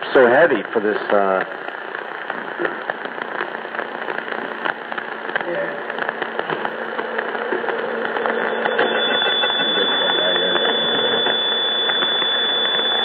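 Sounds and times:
radio hiss and static: 0.0s - 13.0s
high-pitched whistle: 8.4s - 13.0s.

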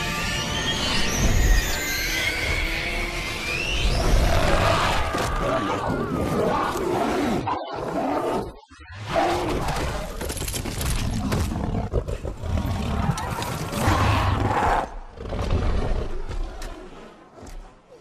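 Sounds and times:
creature roaring and snarling: 3.9s - 10.2s, 11.2s - 16.1s.

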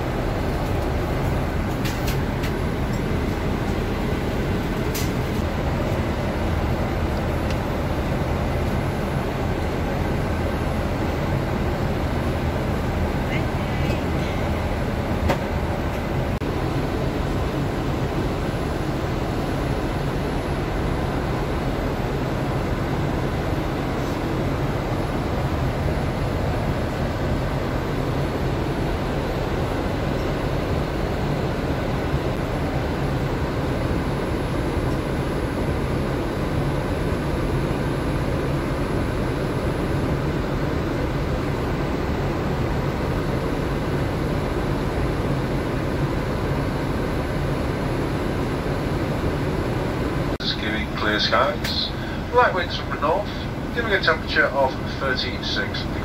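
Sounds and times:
airliner cabin engine noise: 0.0s - 56.0s.

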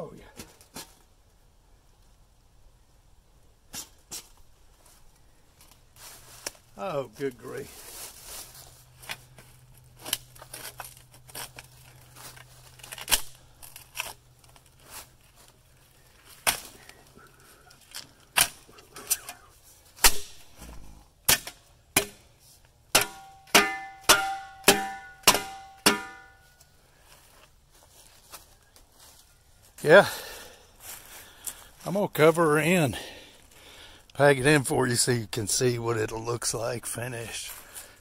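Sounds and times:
metal striking blows: 20.0s - 22.2s, 22.9s - 26.4s.

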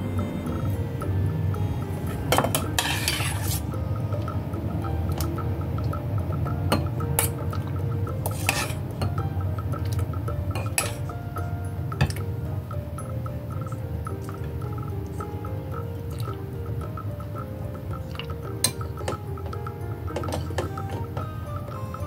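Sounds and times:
background music: 0.0s - 22.0s
spoon scraping: 2.4s - 3.7s, 8.2s - 8.9s
metal spoon clinking: 8.2s - 9.1s, 10.5s - 11.1s.

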